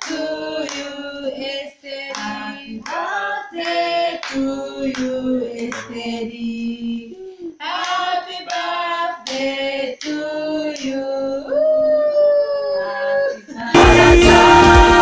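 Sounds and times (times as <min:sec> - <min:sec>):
women and children singing: 0:00.0 - 0:15.0
hand clapping: 0:02.1 - 0:05.9.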